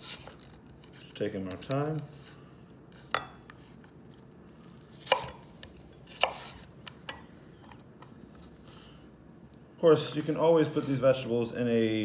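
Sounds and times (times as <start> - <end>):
knife chopping on wooden board: 5.0 - 5.4, 6.1 - 6.7.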